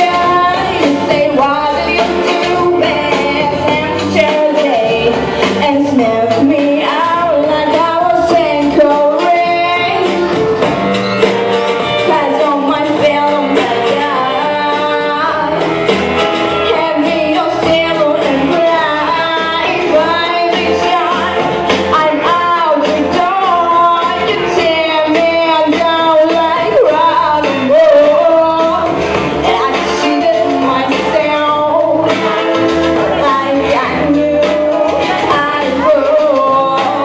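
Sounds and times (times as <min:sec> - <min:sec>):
woman singing into a microphone: 0:00.0 - 0:10.8, 0:11.8 - 0:37.0
instrumental accompaniment: 0:00.0 - 0:37.0.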